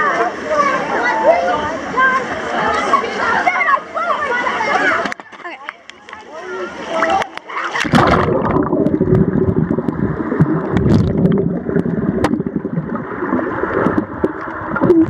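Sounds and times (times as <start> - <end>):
camera splashing into water: 7.8 - 12.6
muffled underwater bubbling rumble: 7.8 - 15.0.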